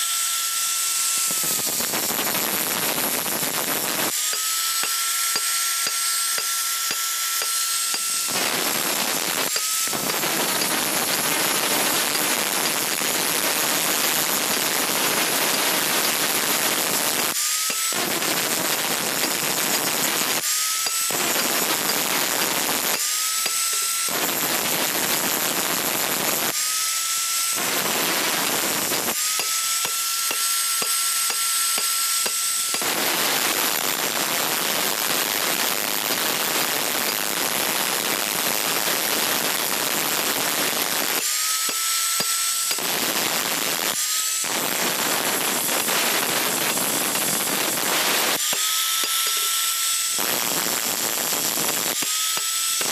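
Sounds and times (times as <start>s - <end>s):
angle grinder grinding steel: 0.0s - 52.9s
grinder motor high whine: 0.0s - 52.9s.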